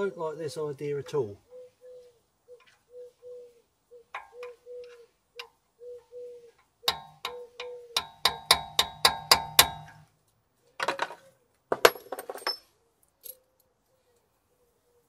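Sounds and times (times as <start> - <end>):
hammer striking metal punch: 8.0 - 10.0
metal tools clinking and rattling: 10.8 - 13.5.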